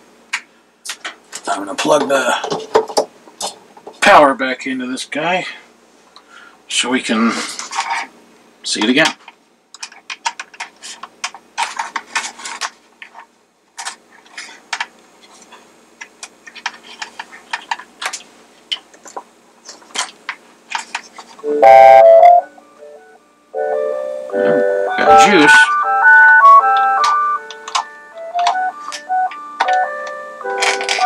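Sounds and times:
small clicks and knocks: 16.0 - 21.3
electronic music box tune: 21.4 - 31.0.

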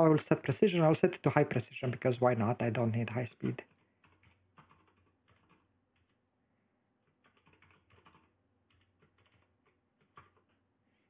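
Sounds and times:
faint keyboard typing: 3.0 - 6.3, 7.0 - 11.0.

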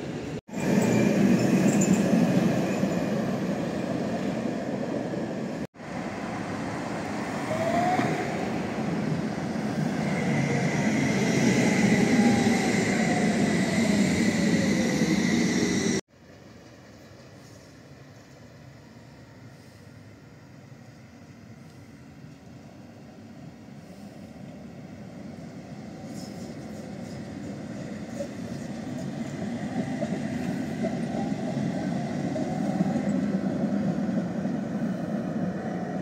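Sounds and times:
tram rumbling past: 0.0 - 18.7, 24.4 - 36.0.

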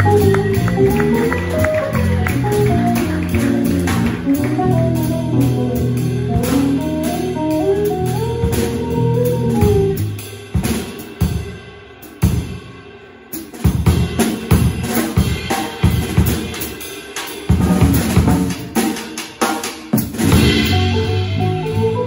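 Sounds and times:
hollow-body electric guitar: 0.0 - 10.0, 20.3 - 22.0
electric bass: 0.0 - 10.4, 20.2 - 22.0
drum kit: 0.0 - 22.0.

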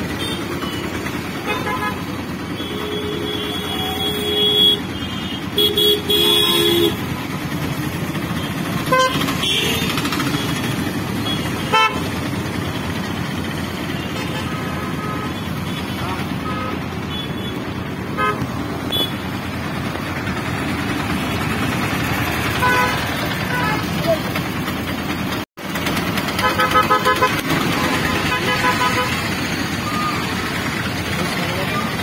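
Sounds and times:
road traffic rumble: 0.0 - 32.0
vehicle horn honking: 0.1 - 7.2, 8.4 - 12.1, 14.0 - 19.3, 22.5 - 24.0, 26.4 - 30.4.

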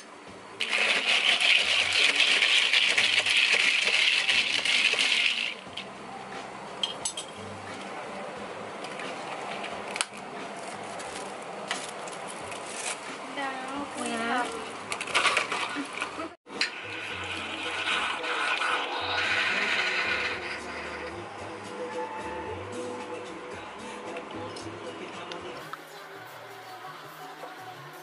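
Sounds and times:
ice cubes clinking in cup: 0.6 - 5.6.

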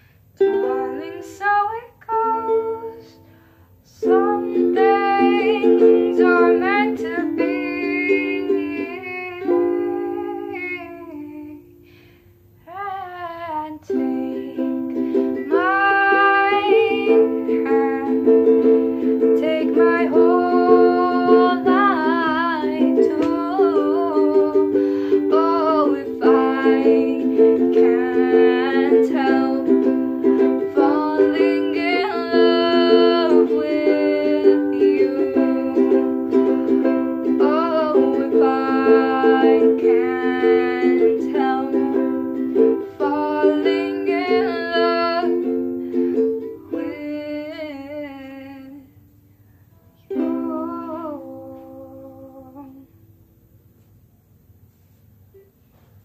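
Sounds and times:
person singing: 0.0 - 3.3, 3.9 - 11.9, 12.7 - 48.9, 50.0 - 53.0
ukulele strumming chords: 0.4 - 3.4, 4.0 - 11.8, 13.4 - 48.8, 49.8 - 52.9.

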